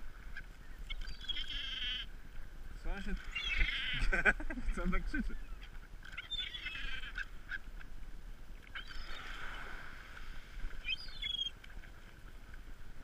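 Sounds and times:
gulls calling: 0:00.0 - 0:07.8, 0:08.6 - 0:10.1, 0:10.7 - 0:11.6
wind hiss: 0:08.0 - 0:11.4.

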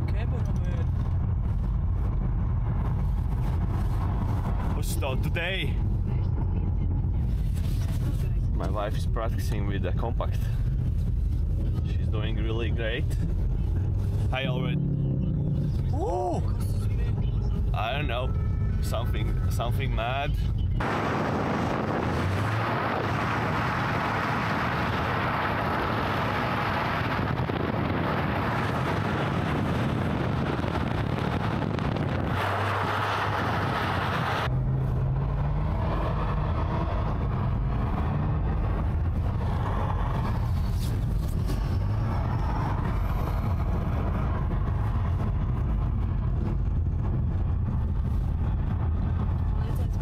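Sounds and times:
car engine running: 0:00.0 - 0:50.0
steady rushing noise: 0:20.8 - 0:34.5.

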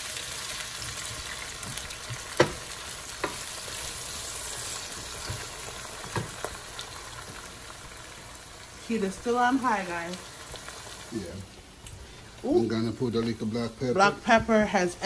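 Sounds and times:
vegetables sizzling in oil: 0:00.0 - 0:15.0
wooden spoon knocking on pan: 0:01.6 - 0:03.4, 0:05.2 - 0:06.5.

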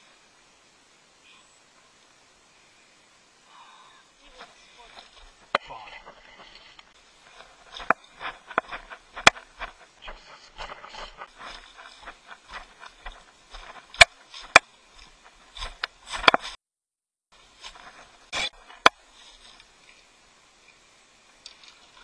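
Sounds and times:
footsteps on dry leaves: 0:04.3 - 0:16.6, 0:17.4 - 0:19.9
sharp clicks and knocks: 0:07.7 - 0:09.8.

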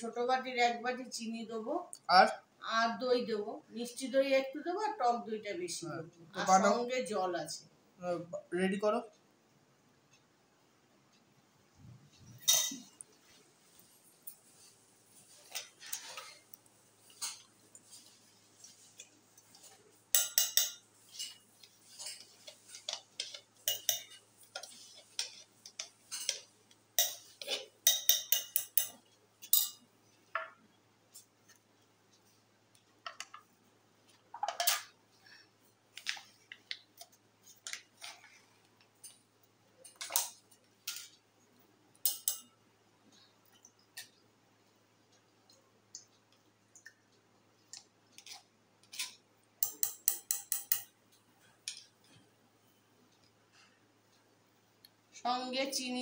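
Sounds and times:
metal spoon clinking in cup: 0:20.2 - 0:21.3, 0:23.2 - 0:24.2, 0:27.0 - 0:29.8, 0:42.1 - 0:42.5, 0:49.6 - 0:50.9.

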